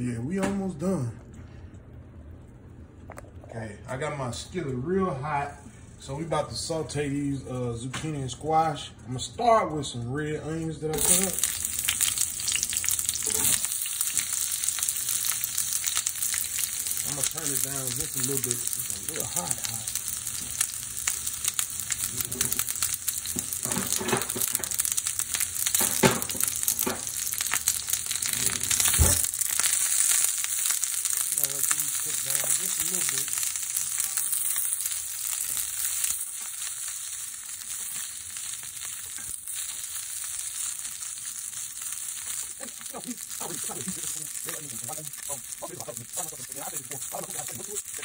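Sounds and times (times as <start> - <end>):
onions sizzling in a skillet: 10.9 - 48.0.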